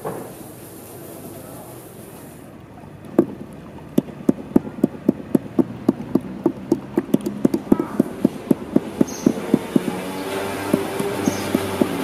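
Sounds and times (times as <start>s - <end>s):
low drum beat: 3.2s - 12.0s.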